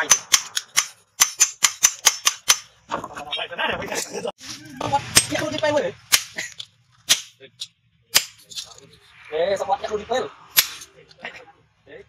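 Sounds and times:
hammer striking steel on anvil: 0:00.0 - 0:02.7, 0:10.5 - 0:10.9.

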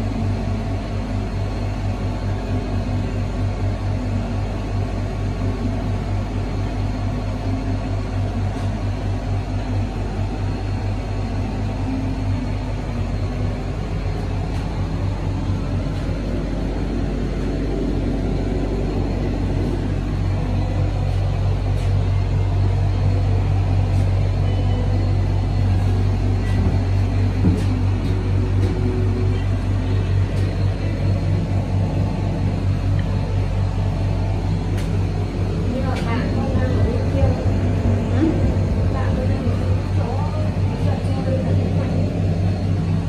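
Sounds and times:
ferris wheel gondola rumble and hum: 0:00.0 - 0:43.0.

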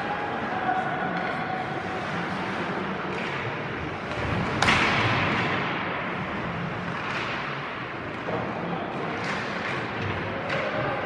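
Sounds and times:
hockey puck struck: 0:03.1 - 0:06.2.

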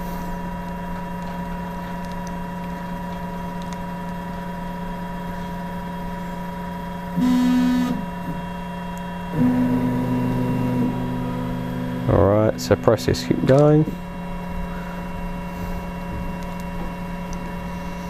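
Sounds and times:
three d printer humming: 0:00.0 - 0:18.0
stepper motors whining: 0:01.0 - 0:18.0.

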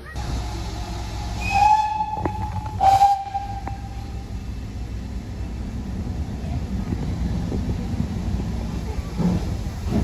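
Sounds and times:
low rumble of train: 0:00.0 - 0:10.0
steam locomotive whistle: 0:01.4 - 0:04.2.

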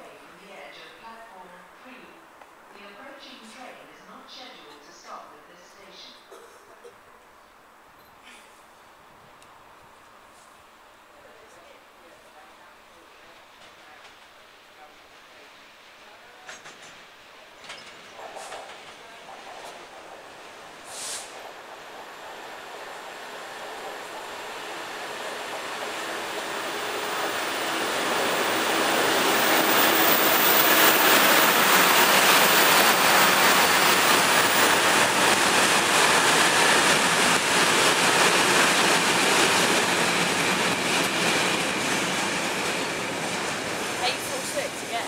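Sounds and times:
diesel locomotive passing: 0:15.8 - 0:45.0
wagons rumbling over rails: 0:16.5 - 0:45.0.

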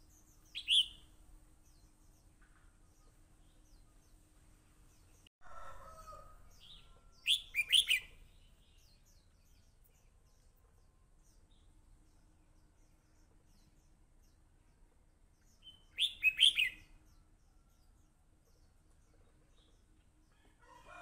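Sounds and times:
small birds chirping: 0:00.0 - 0:05.3, 0:06.4 - 0:20.5
bird singing quick notes: 0:00.6 - 0:01.0
lower bird call: 0:00.6 - 0:01.1.

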